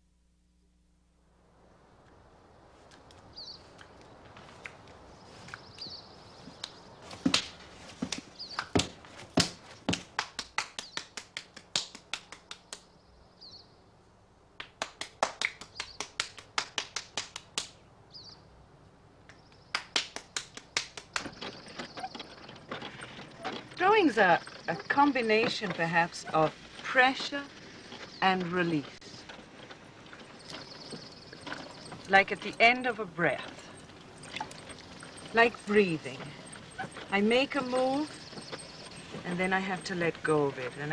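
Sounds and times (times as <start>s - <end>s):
bird chirping: 3.3s - 7.3s, 8.0s - 8.8s, 12.6s - 13.9s, 18.1s - 18.6s, 21.1s - 40.9s.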